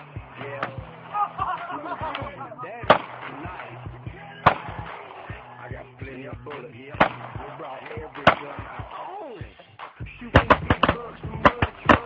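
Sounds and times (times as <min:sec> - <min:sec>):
gunshots: 0:02.1 - 0:05.7, 0:06.5 - 0:09.1, 0:10.3 - 0:12.0.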